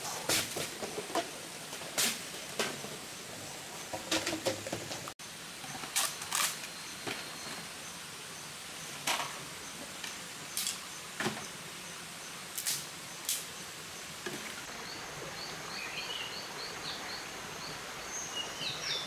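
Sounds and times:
forest ambience hiss: 0.0s - 19.0s
wooden sticks knocking: 3.9s - 5.1s.

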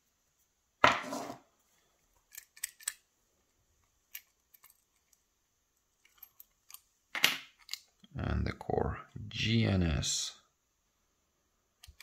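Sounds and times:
tools clicking on a padlock: 2.2s - 3.1s, 4.1s - 5.2s, 11.8s - 12.0s.

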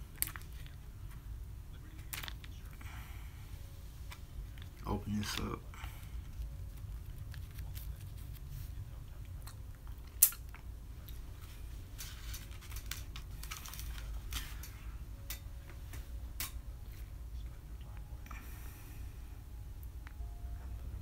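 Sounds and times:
plastic packet crinkling: 0.0s - 0.8s, 2.0s - 2.8s, 6.2s - 8.6s, 12.0s - 14.7s
steady low hum: 0.0s - 21.0s.

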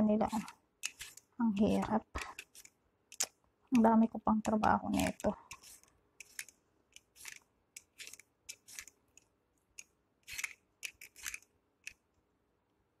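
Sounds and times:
knife scraping radish: 0.0s - 3.3s, 4.4s - 9.0s, 10.2s - 12.0s.

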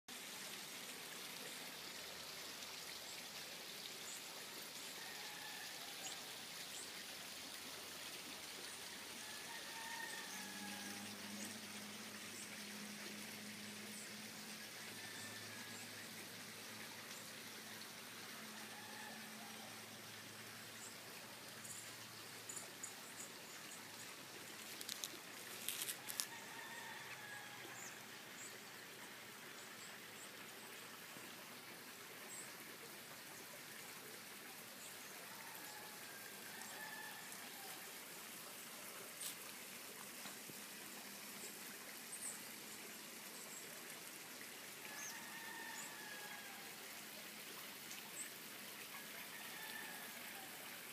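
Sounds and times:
faint rooster crowing: 5.0s - 6.4s, 9.2s - 11.5s, 14.8s - 15.9s, 18.4s - 19.9s, 25.6s - 28.2s, 35.2s - 38.0s, 44.9s - 47.0s, 49.0s - 50.9s.

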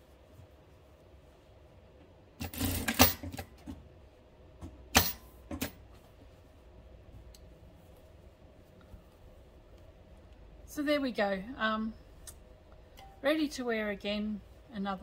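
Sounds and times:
sewing machine stitching: 2.4s - 3.3s.

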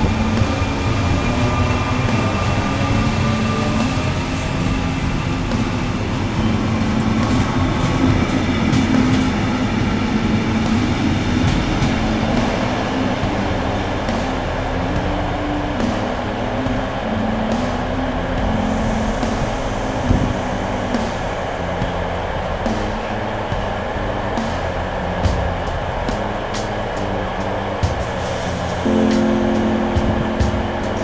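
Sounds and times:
train rumble with electric whine: 0.0s - 31.0s.

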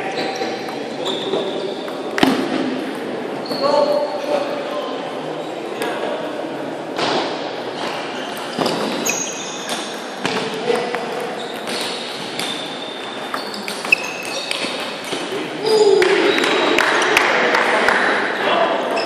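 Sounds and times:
murmur of voices: 0.0s - 19.0s.

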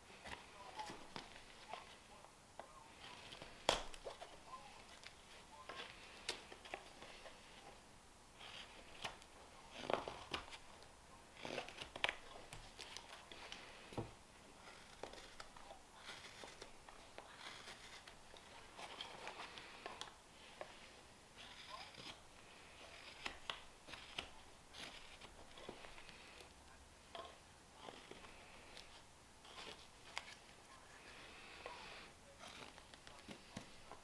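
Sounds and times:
knife slicing and scraping wood: 17.3s - 19.4s, 21.4s - 25.9s.

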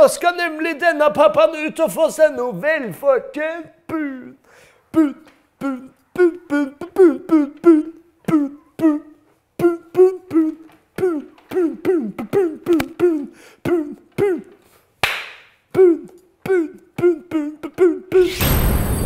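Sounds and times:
man beatboxing: 4.9s - 14.6s, 15.7s - 18.3s.

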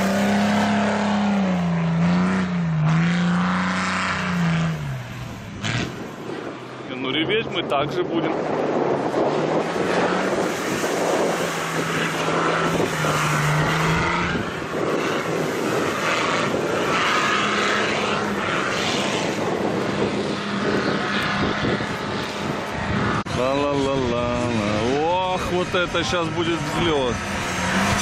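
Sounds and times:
off-road vehicle engine revving: 0.0s - 28.0s
water rushing and splashing: 9.0s - 20.6s.

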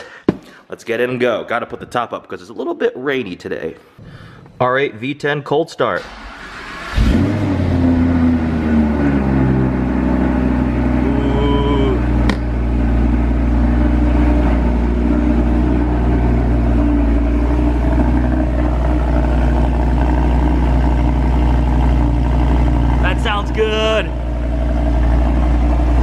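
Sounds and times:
car engine fast idle: 9.2s - 26.0s.

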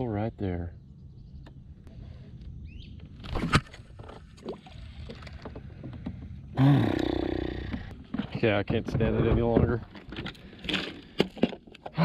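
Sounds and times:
fishing gear clicking and knocking: 7.0s - 12.0s.

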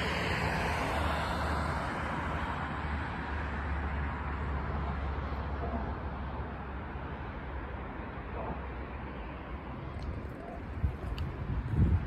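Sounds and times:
passing vehicle rushing: 0.0s - 7.7s
low traffic rumble: 0.0s - 12.0s.

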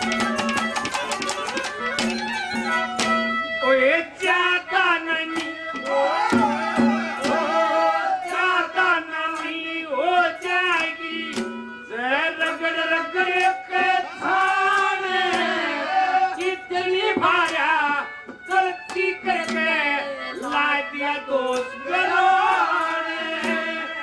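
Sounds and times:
drum strikes: 0.0s - 3.4s, 5.3s - 7.9s, 10.8s - 11.8s, 13.8s - 16.6s, 22.3s - 23.9s
instrumental backing: 0.0s - 24.0s
man singing folk melody: 16.3s - 22.2s.

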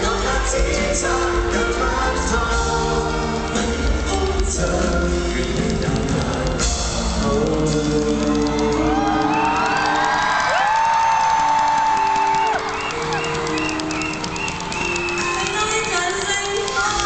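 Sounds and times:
people singing: 0.0s - 10.1s
live band playing pop song: 0.0s - 17.0s
crowd screaming and cheering: 7.4s - 17.0s.

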